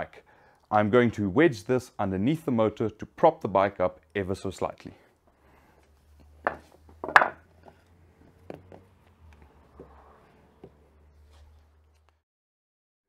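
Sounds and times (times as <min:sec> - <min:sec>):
wood blocks knocking on concrete: 0:06.4 - 0:07.8.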